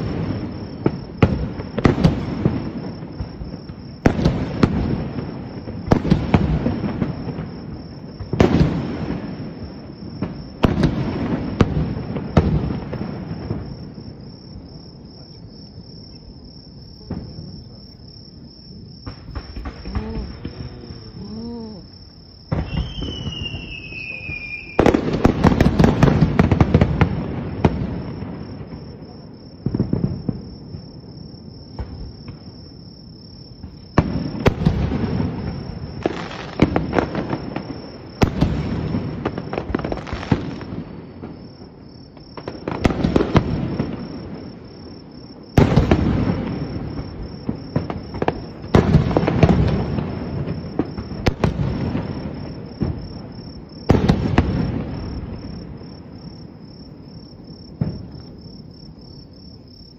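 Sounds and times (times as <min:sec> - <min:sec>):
fireworks bursting: 0:00.0 - 0:15.3, 0:16.8 - 0:32.8, 0:33.6 - 0:59.1
insects chirring: 0:00.0 - 0:59.9
falling firework whistle: 0:22.5 - 0:28.2.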